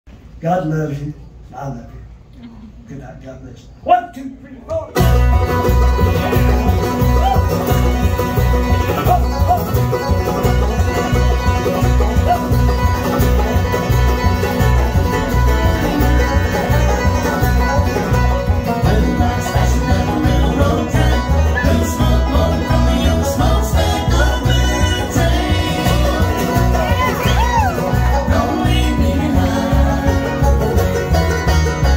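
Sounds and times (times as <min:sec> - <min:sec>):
bluegrass band playing: 0:04.8 - 0:31.9.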